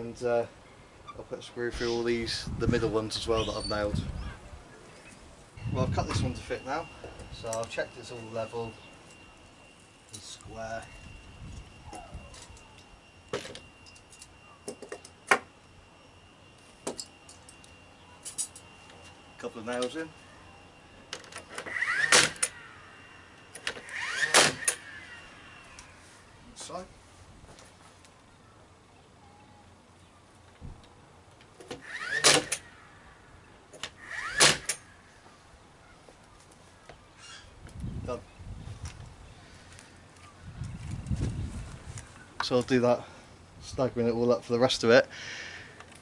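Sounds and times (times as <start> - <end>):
rising motor whine: 18.7 - 26.6
nail gun shots into timber: 24.2 - 24.8, 32.2 - 32.6, 34.4 - 34.8.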